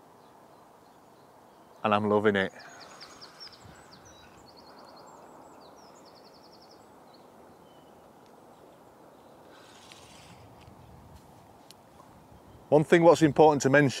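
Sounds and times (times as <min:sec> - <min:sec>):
songbird chirping: 0:00.0 - 0:13.8
faint open-air hiss: 0:00.0 - 0:14.0.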